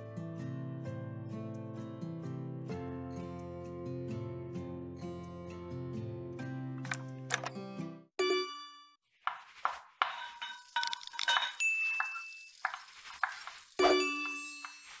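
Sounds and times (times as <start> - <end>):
dishes and utensils clinking: 9.3 - 15.0
chime: 11.3 - 12.6, 13.8 - 15.0.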